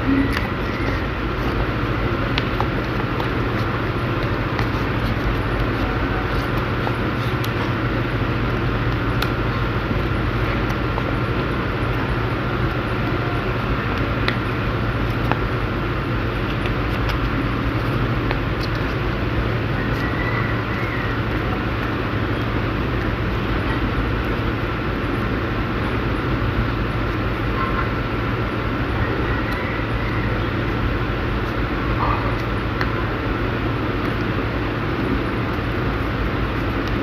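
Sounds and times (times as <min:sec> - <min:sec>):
stiff paper being folded: 0:00.0 - 0:25.3
background rumble and hiss: 0:00.0 - 0:37.0
low hum: 0:00.0 - 0:37.0.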